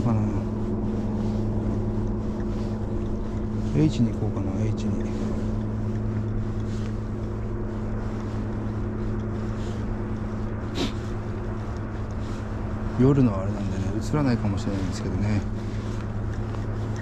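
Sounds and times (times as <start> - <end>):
boat engine running: 0.0 - 17.0.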